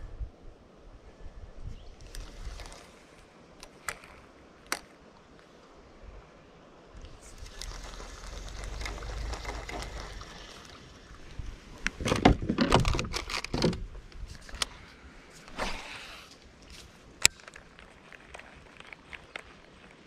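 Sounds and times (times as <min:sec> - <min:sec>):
kayak knocks and clunks: 0:11.9 - 0:14.0.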